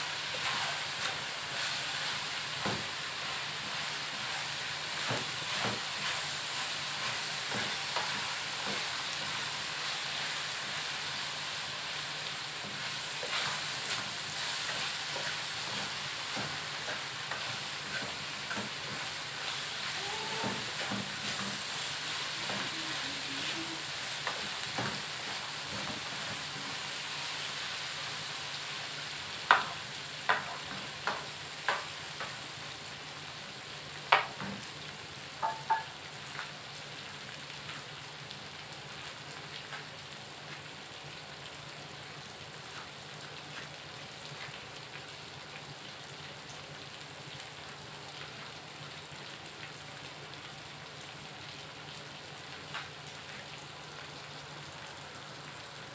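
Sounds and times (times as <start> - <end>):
peanuts sizzling in a pan: 0.0 - 55.9.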